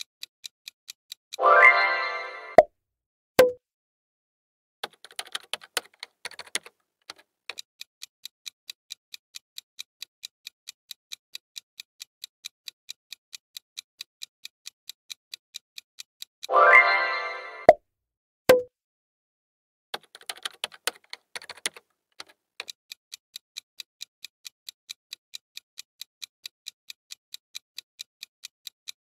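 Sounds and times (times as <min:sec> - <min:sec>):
irregular typing-like clicks: 0:00.0 - 0:01.4, 0:04.8 - 0:16.5, 0:19.9 - 0:29.0
clock ticking: 0:00.0 - 0:01.8, 0:04.8 - 0:17.0, 0:20.0 - 0:29.0.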